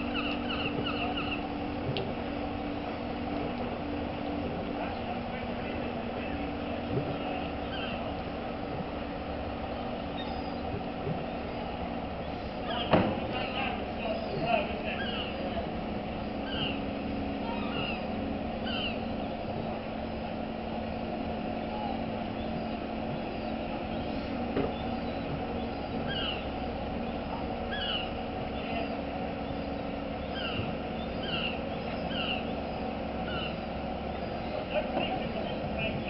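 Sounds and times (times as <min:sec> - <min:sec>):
crane diesel engine humming: 0:00.0 - 0:36.0.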